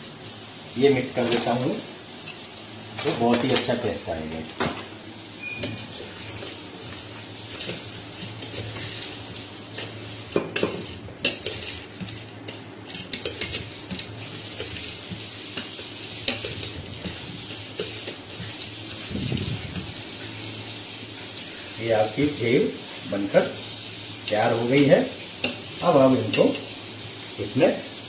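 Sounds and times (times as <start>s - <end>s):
spoon stirring dry puffed rice: 7.5s - 18.7s.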